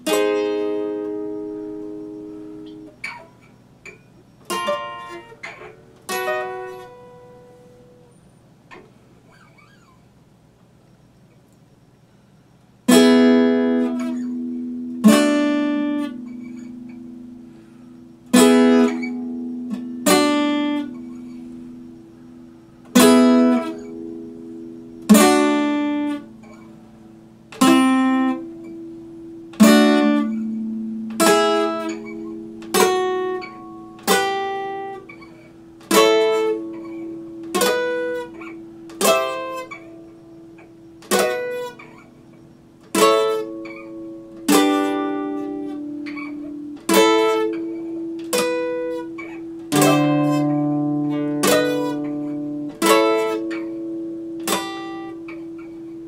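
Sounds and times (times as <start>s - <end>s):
acoustic guitar chords ringing: 0.0s - 56.0s.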